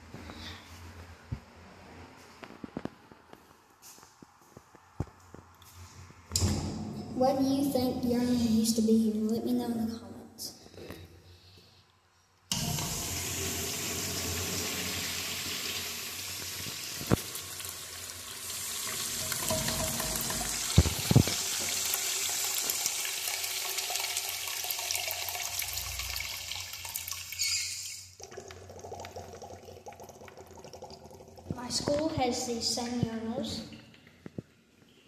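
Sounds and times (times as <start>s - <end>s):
urinal flushing water rush: 12.5s - 27.6s.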